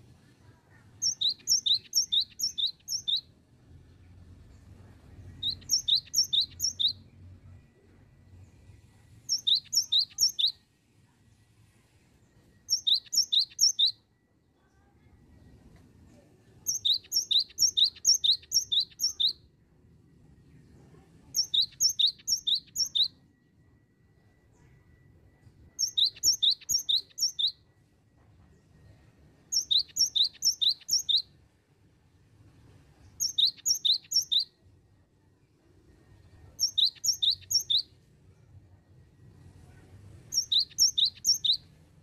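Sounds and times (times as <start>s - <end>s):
bird singing high whistled notes: 1.0s - 3.3s, 5.2s - 7.1s, 9.3s - 10.6s, 12.6s - 14.1s, 16.7s - 19.5s, 21.4s - 23.4s, 25.6s - 27.6s, 29.5s - 31.4s, 33.2s - 34.6s, 36.6s - 38.0s, 40.3s - 41.8s
faint low rumble: 3.3s - 9.5s, 37.9s - 40.5s.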